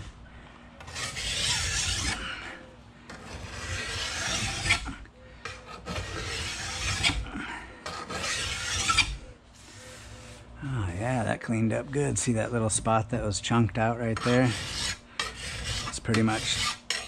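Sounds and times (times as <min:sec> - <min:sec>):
file scraping steel: 0:00.8 - 0:10.4, 0:13.8 - 0:17.0.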